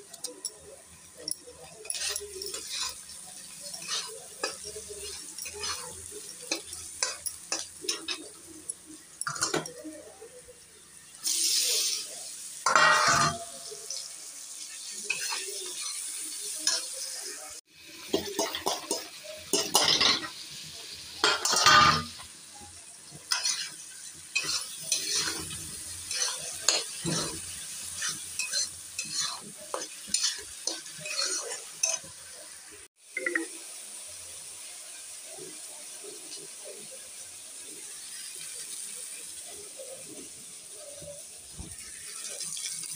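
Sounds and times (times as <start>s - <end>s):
food sizzling: 0.0s - 42.9s
metal spatula scraping a pan: 1.1s - 8.4s, 12.6s - 14.1s, 15.0s - 17.0s, 18.0s - 20.4s, 21.2s - 22.2s, 23.1s - 32.3s.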